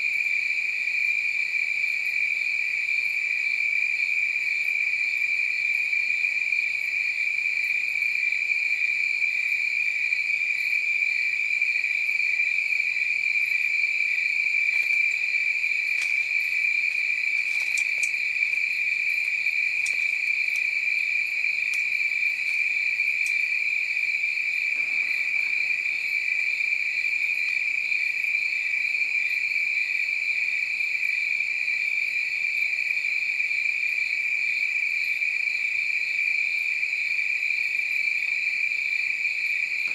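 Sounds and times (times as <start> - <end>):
crickets chirping: 0.0 - 39.9
faint ticks: 15.9 - 18.3, 19.2 - 20.7, 21.6 - 23.5.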